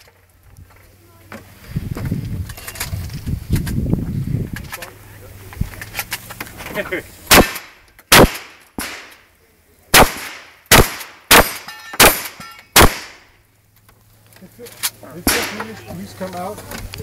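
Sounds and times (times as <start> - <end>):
shotgun shots: 7.3 - 9.2, 9.9 - 13.3, 15.2 - 15.8
weaker sharp bang: 15.2 - 15.9.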